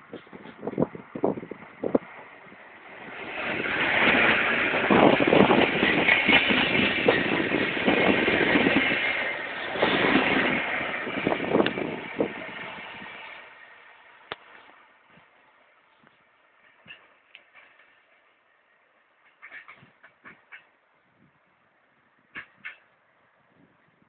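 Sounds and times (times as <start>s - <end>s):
electric train passing: 0.0s - 19.6s
wheels knocking over rail joints: 0.1s - 15.3s, 16.6s - 18.3s, 19.2s - 20.7s.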